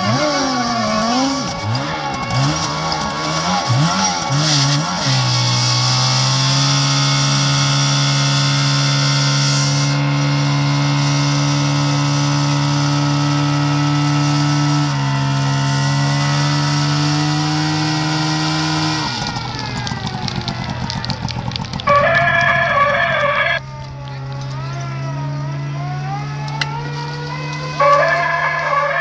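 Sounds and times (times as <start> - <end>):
pump engine running hard: 18.4 - 23.7.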